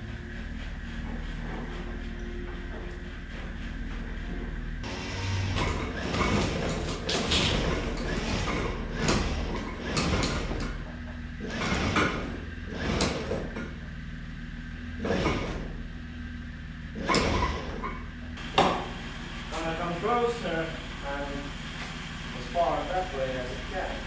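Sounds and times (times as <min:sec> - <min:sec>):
steady low hum: 0:00.0 - 0:24.0
metal scraping and rattling: 0:00.7 - 0:13.8.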